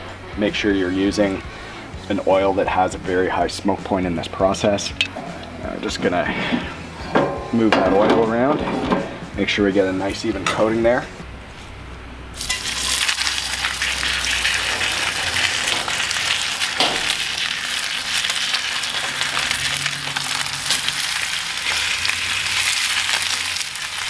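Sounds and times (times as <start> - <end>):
steaks sizzling in a hot pan: 12.4 - 24.0.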